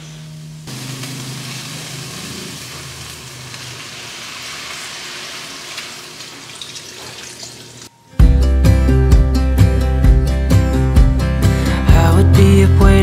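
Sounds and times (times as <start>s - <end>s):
broth sizzling in hot pan: 0.5s - 7.9s.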